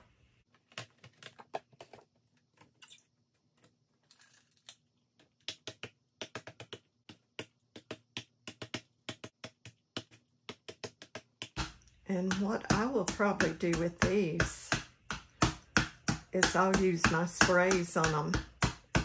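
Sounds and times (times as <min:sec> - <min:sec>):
ink pad tapping on stamps: 0:05.5 - 0:19.0.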